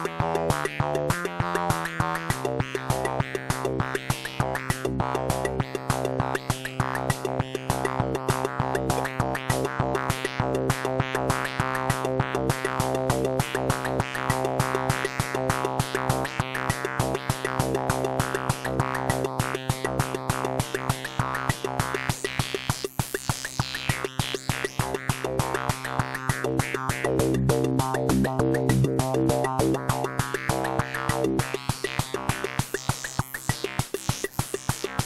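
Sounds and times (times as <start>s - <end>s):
fast drum machine pattern: 0.0s - 35.0s
low synth tones: 25.2s - 32.5s.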